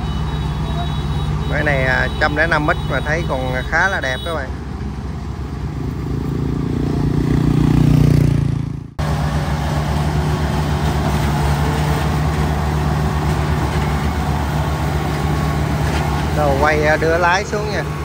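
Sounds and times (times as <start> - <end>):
diesel engine running: 0.0 - 18.0.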